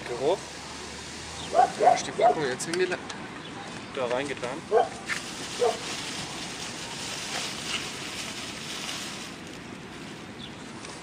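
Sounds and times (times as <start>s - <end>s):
dog yipping: 1.5s - 2.4s, 4.7s - 5.0s, 5.6s - 5.8s.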